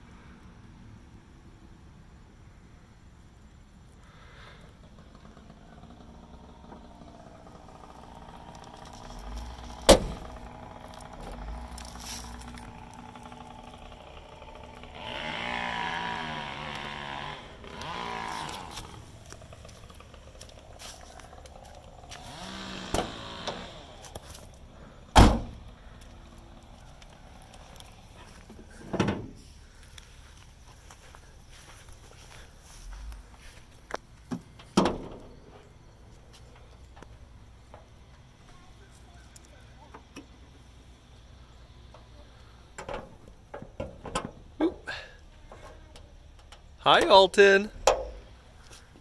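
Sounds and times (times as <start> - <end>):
car panels shutting with thunks: 9.8 - 10.3, 25.1 - 25.6.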